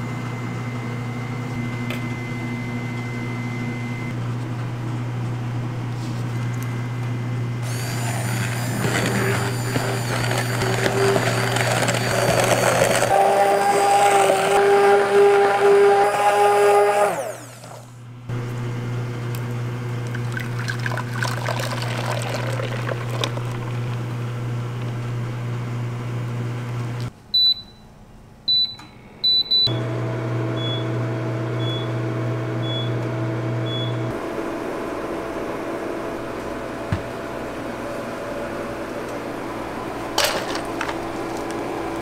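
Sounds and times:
induction cooktop hum: 0.0s - 42.0s
immersion blender whining: 7.6s - 18.5s, 19.8s - 25.6s, 29.7s - 37.2s, 40.3s - 42.0s.

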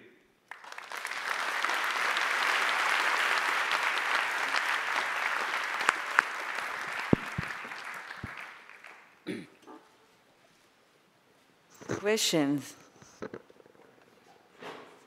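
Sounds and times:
audience applauding: 0.5s - 9.2s.

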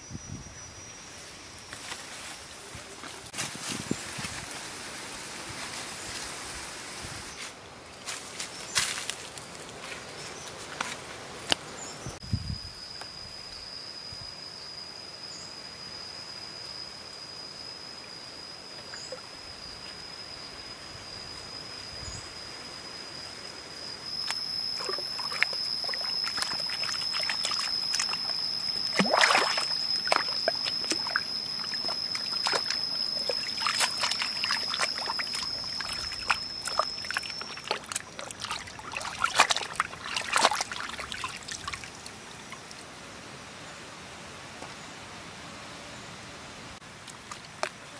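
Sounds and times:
steady high-pitched tone: 12.2s - 42.8s
water sloshing and splashing: 24.8s - 42.8s.

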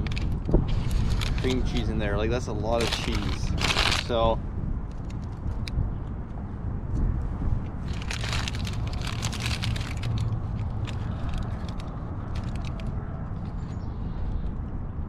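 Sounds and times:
paper bag crinkling: 0.0s - 2.0s, 2.7s - 4.3s, 7.8s - 12.9s
low rumble: 0.0s - 15.0s.

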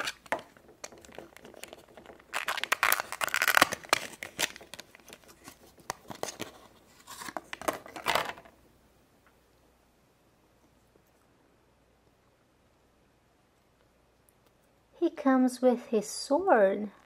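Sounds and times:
plastic wrapper crinkling and tearing: 0.0s - 8.4s.

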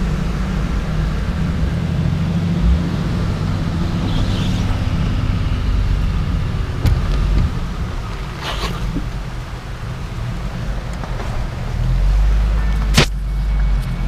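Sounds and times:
vehicle engine low rumble: 0.0s - 14.0s
low thump: 2.6s - 4.2s.

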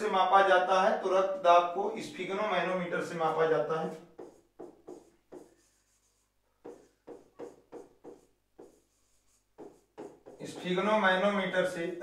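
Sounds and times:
marker pen writing on board: 3.8s - 11.3s.

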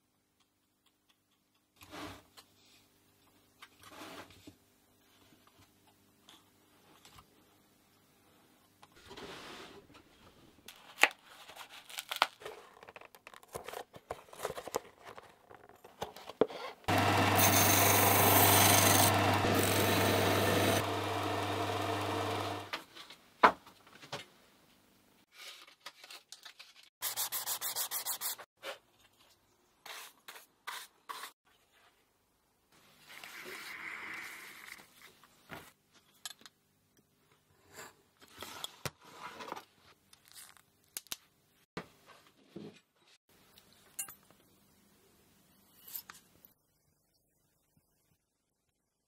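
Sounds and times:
wood being sanded: 16.9s - 22.7s
disc sander motor hum: 16.9s - 22.8s.

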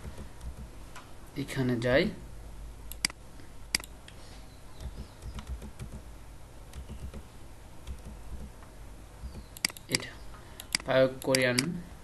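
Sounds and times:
computer mouse clicks: 2.9s - 4.2s, 4.8s - 6.0s, 6.7s - 7.3s, 7.9s - 8.6s, 9.2s - 10.0s, 10.6s - 11.7s.

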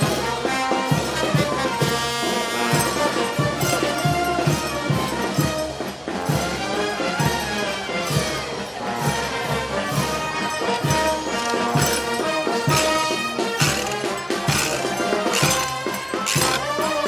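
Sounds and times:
steady drum beat: 0.0s - 17.0s
sustained horn notes: 0.9s - 4.0s.

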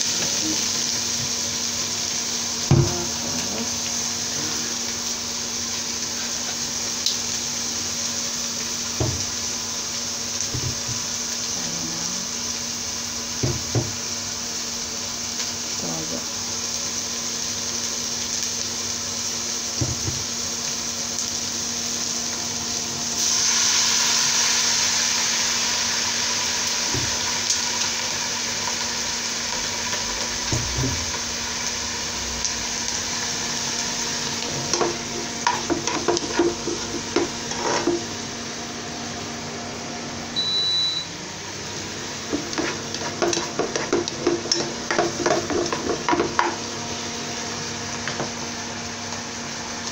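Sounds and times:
onion sizzling in hot oil: 0.0s - 49.9s
spatula scraping and tapping pot: 34.7s - 38.0s, 42.3s - 46.6s
short high beep: 40.4s - 41.1s.

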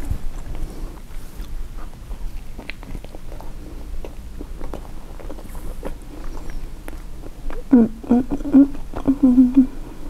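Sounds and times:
chewing sandwich: 0.0s - 7.7s.

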